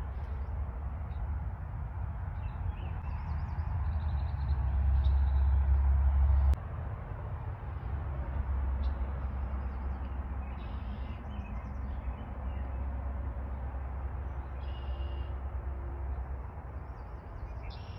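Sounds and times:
birds chirping: 8.8 - 12.9, 16.1 - 17.9
faint bird twittering: 9.6 - 12.7, 14.5 - 15.4.

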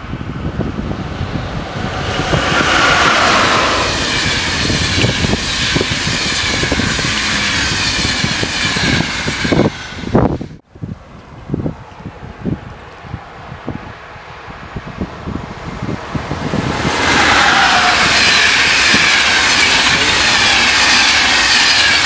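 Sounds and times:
train passing at speed: 0.0 - 10.6, 12.1 - 22.0
wind gusts on microphone: 0.0 - 22.0.

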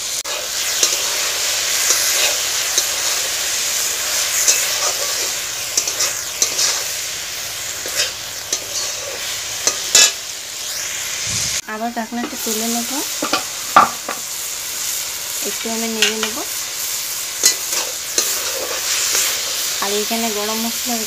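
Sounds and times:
pumpkin sizzling in a pan: 0.0 - 21.0
spatula scraping and knocking pan: 4.4 - 6.9, 13.2 - 14.3.

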